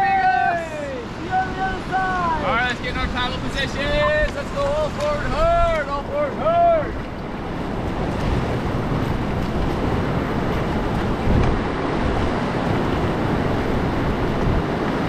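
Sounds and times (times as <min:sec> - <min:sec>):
river water rushing: 0:00.0 - 0:15.0
wind buffeting microphone: 0:00.0 - 0:15.0.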